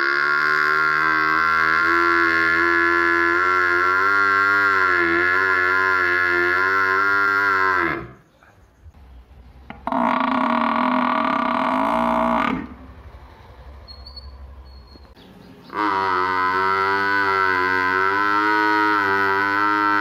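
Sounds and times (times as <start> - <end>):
water buffalo calling: 0.0 - 8.2, 9.7 - 13.1, 15.7 - 20.0.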